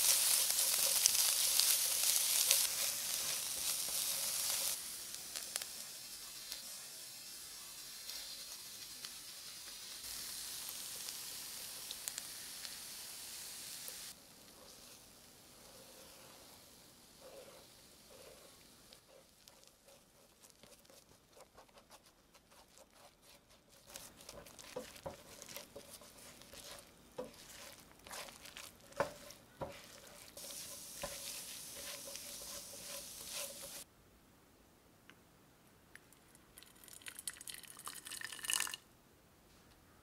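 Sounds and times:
spatula scraping frying pan: 0.0s - 4.8s, 15.6s - 33.9s
egg sizzling: 0.0s - 33.9s, 36.6s - 38.8s
water pouring into plate: 36.6s - 38.8s.

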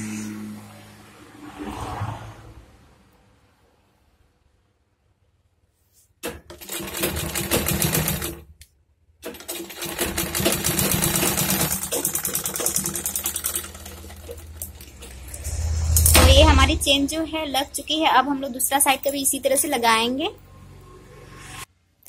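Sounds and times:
sewing machine stitching: 6.2s - 8.5s, 9.2s - 15.4s.

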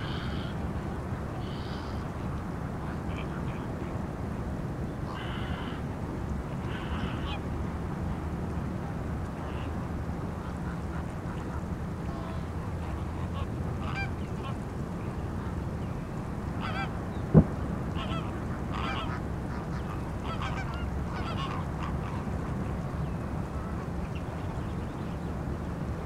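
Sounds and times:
flamingos honking: 0.0s - 4.0s, 5.0s - 5.9s, 6.5s - 7.5s, 9.4s - 24.8s
steady low rumble: 0.0s - 26.0s
sharp knock: 17.3s - 17.6s.

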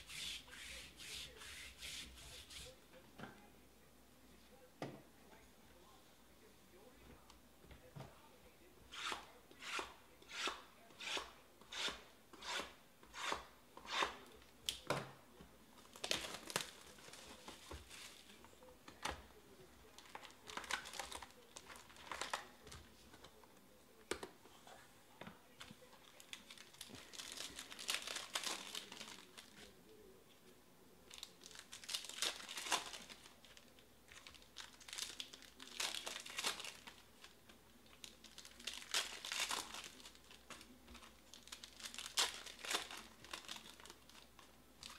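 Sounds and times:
scratchy strokes: 0.0s - 2.8s
wrappers crinkling: 15.8s - 18.7s, 19.9s - 22.7s, 25.9s - 29.8s, 31.1s - 44.9s
foil packs tearing: 26.3s - 29.6s, 31.4s - 33.4s, 34.1s - 36.9s, 38.2s - 40.6s, 41.3s - 44.9s.

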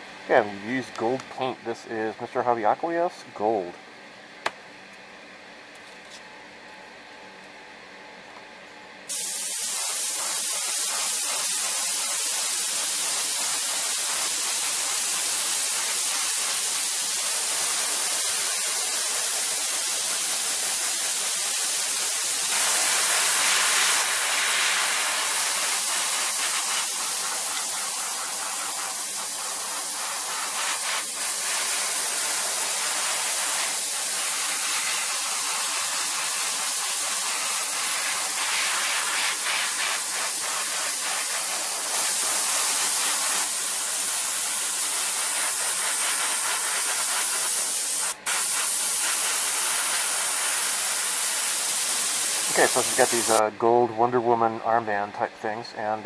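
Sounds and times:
airbrush spraying hiss: 9.1s - 53.4s.

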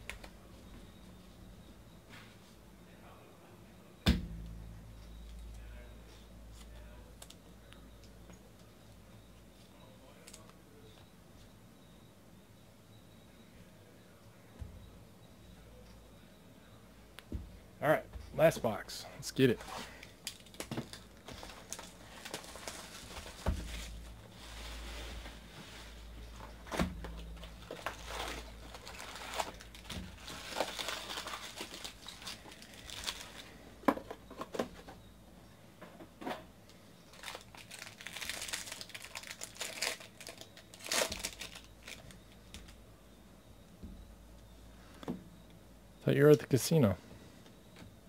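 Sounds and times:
foil packs crinkling: 19.7s - 33.6s, 37.1s - 42.8s
cellophane wrapper tearing off: 27.7s - 33.5s, 37.1s - 42.2s.

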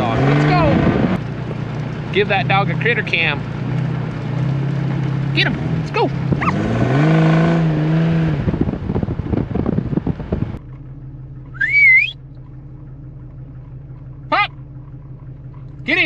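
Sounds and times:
low engine drone in cab: 0.0s - 16.0s
tyres on gravel road: 0.0s - 16.0s
vehicle engine revving: 0.0s - 16.0s
person whistling: 11.5s - 12.2s.

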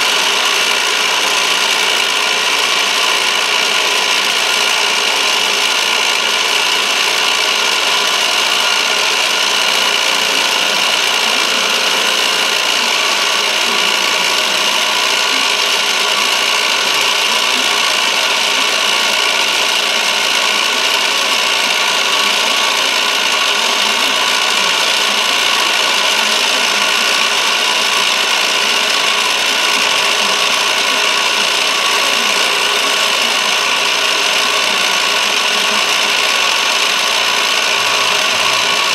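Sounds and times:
constant high tone: 0.0s - 38.9s
milling machine cutting metal: 0.0s - 38.9s.

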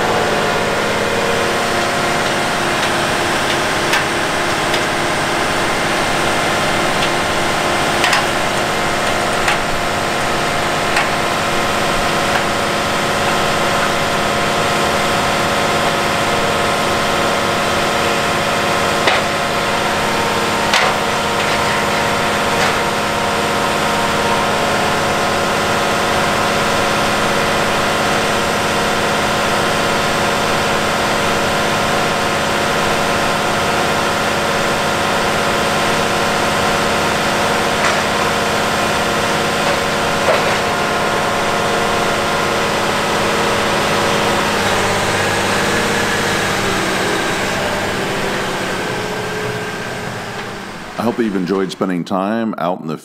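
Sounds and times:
hydraulic folding: 0.0s - 51.7s
tractor diesel engine idling: 0.0s - 52.4s
metal clunks: 0.7s - 15.1s, 18.8s - 25.4s, 36.9s - 42.4s.

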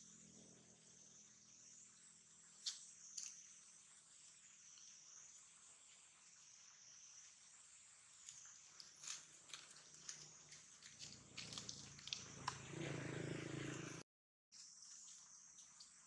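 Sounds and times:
insects chirring: 0.0s - 13.2s, 14.6s - 16.0s
dry leaves crackling: 8.3s - 12.5s.

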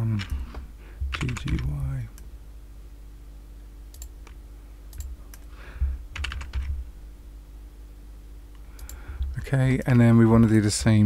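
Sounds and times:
computer keyboard keys clicking: 1.1s - 1.9s, 3.9s - 5.5s, 6.1s - 6.8s.

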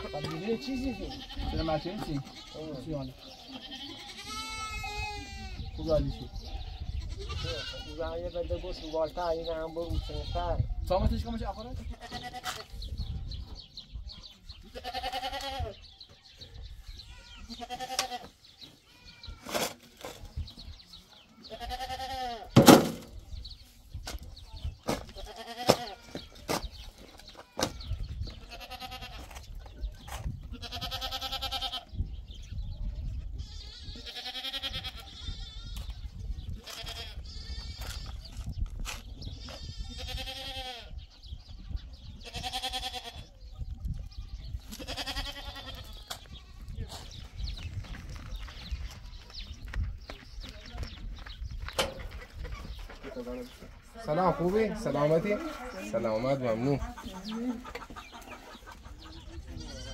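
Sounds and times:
goats bleating: 0.0s - 9.0s, 11.8s - 12.7s, 14.7s - 15.9s, 17.0s - 19.5s, 21.4s - 22.6s, 25.2s - 26.4s, 27.4s - 29.4s, 30.5s - 31.9s, 33.4s - 36.0s, 36.6s - 38.3s, 39.4s - 41.0s, 42.2s - 43.3s, 44.3s - 46.8s, 59.3s - 59.9s.

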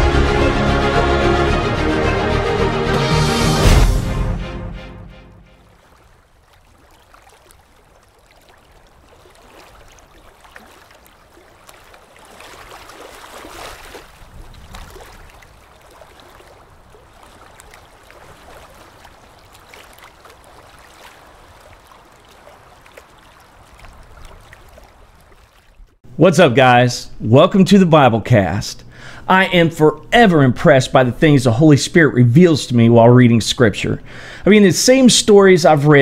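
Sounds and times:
water waves lapping: 0.0s - 26.0s.

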